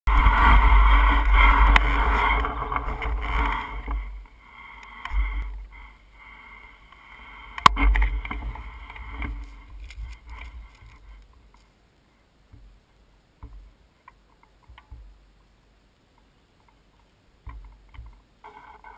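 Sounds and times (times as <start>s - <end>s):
wind on microphone: 0.1s - 4.3s
bike rattling: 0.1s - 11.7s.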